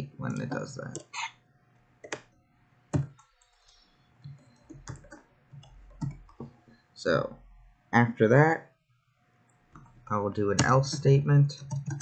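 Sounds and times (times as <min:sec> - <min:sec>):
computer keyboard typing: 0:02.0 - 0:02.3, 0:03.0 - 0:06.5, 0:10.6 - 0:12.0.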